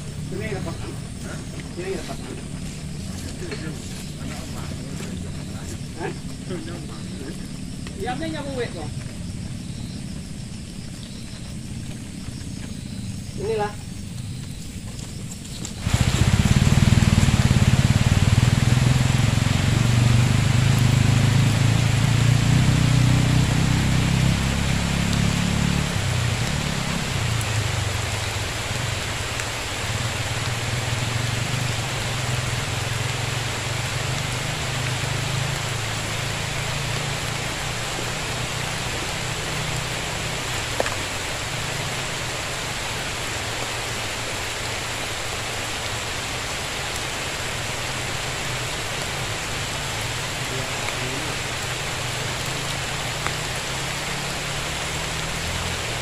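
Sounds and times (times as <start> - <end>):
rain hiss: 0.0 - 56.0
rushing river: 15.6 - 56.0.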